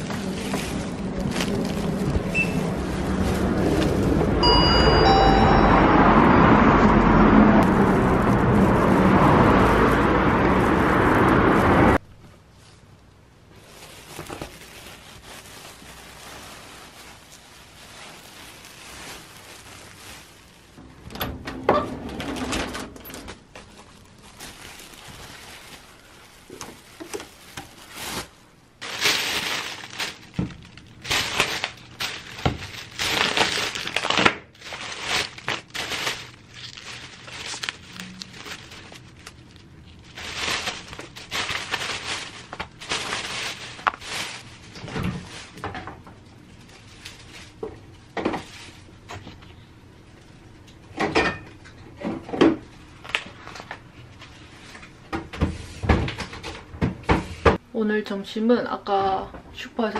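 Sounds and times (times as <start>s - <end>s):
packaging crinkling and rustling: 0.0s - 4.4s, 7.6s - 12.0s, 13.4s - 20.8s, 23.1s - 49.6s, 52.7s - 55.0s.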